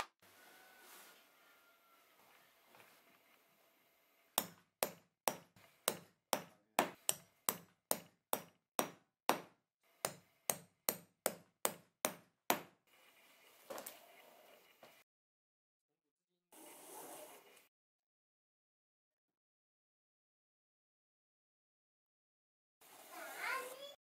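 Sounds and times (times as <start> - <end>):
mallet knocking on chisel: 4.4 - 12.8.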